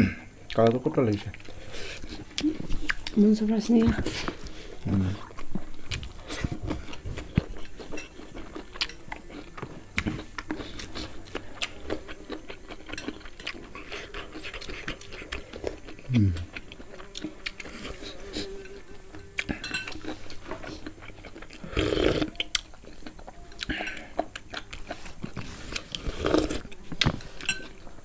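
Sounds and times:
mouth sounds of eating: 0:00.0 - 0:28.0
low grunt: 0:16.1 - 0:16.5
spoons clinking on ceramic bowl: 0:19.5 - 0:20.1.

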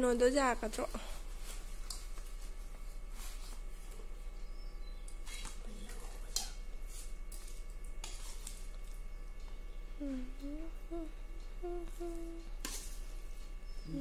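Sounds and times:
person humming: 0:10.0 - 0:12.6.

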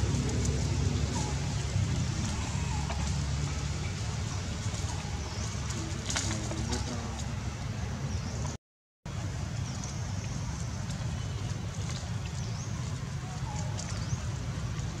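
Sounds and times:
low rumble and hiss: 0:00.0 - 0:08.5.

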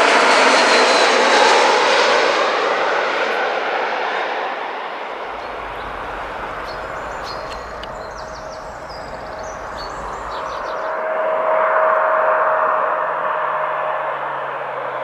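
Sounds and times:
jet airliner engines: 0:00.0 - 0:15.0
birds chirping: 0:05.2 - 0:11.0.

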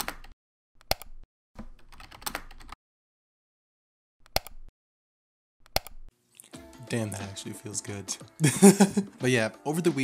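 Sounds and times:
computer keyboard typing: 0:01.7 - 0:02.8
mouse clicking: 0:04.2 - 0:04.6, 0:05.6 - 0:06.0.

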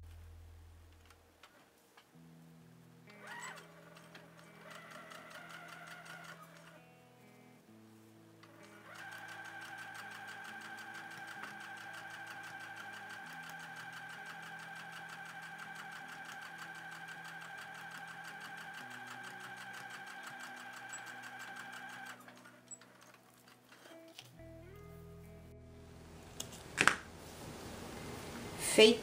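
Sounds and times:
sewing machine stitching: 0:03.1 - 0:06.8, 0:08.5 - 0:24.0.

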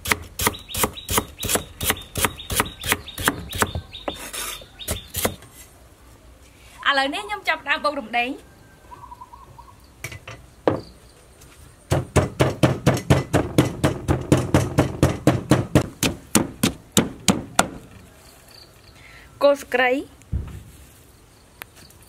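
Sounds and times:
wooden pestle pounding in mortar: 0:11.9 - 0:17.8.

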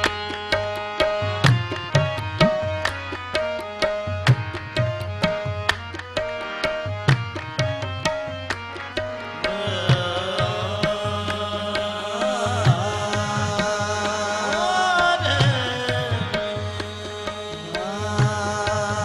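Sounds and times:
harmonium drone: 0:00.0 - 0:19.0
tabla strokes: 0:00.0 - 0:19.0
person singing: 0:09.5 - 0:19.0.

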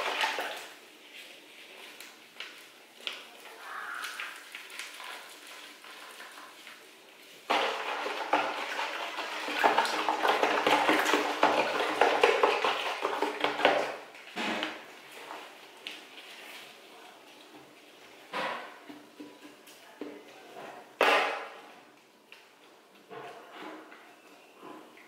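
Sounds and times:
liquid sloshing in plastic basin: 0:00.0 - 0:01.0, 0:07.4 - 0:16.6.

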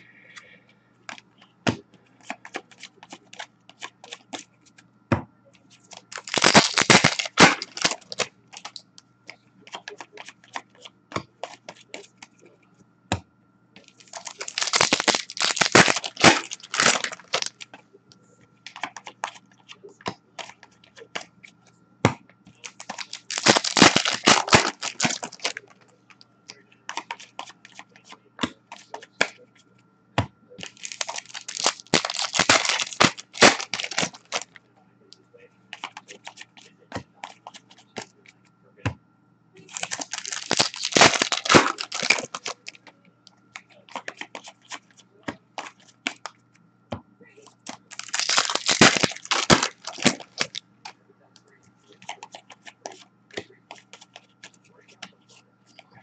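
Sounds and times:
faint steady hum: 0:00.0 - 0:56.0
wrapper tearing and crinkling: 0:06.1 - 0:08.8, 0:14.0 - 0:17.6, 0:22.6 - 0:25.6, 0:30.6 - 0:34.4, 0:39.7 - 0:42.8, 0:47.7 - 0:50.6.

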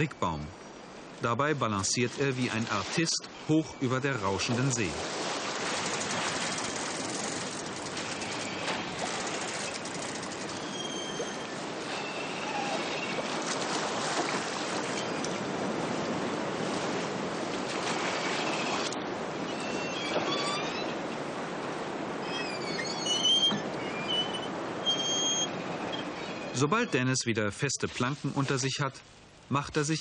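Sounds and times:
sea water rushing and breaking: 0:00.0 - 0:22.7, 0:23.6 - 0:29.0
faint high squeaks: 0:07.8 - 0:13.3, 0:14.9 - 0:15.3, 0:18.5 - 0:21.2, 0:22.2 - 0:27.1.

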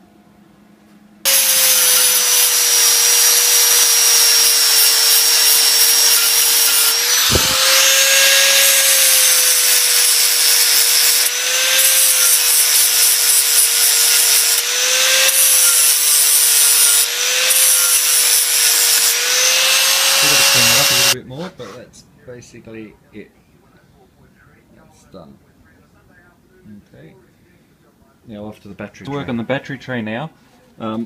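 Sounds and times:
angle grinder grinding metal: 0:01.3 - 0:21.2.

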